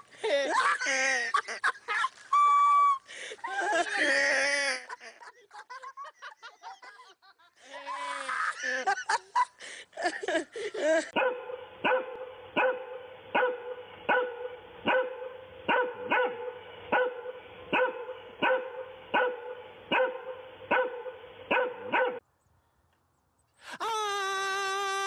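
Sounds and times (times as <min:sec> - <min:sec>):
dog barking: 0:11.2 - 0:22.2.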